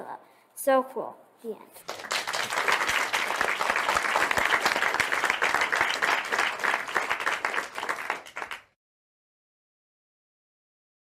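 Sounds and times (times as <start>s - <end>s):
applause: 1.8s - 8.8s.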